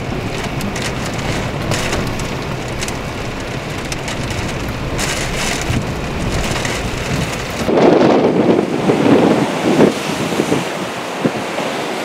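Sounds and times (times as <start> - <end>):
high wind: 0.0 - 12.0
surf breaking over rocks: 0.0 - 12.0.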